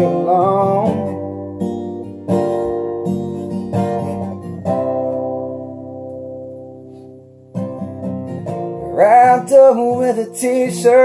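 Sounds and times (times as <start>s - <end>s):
acoustic guitar strummed: 0.0s - 11.0s.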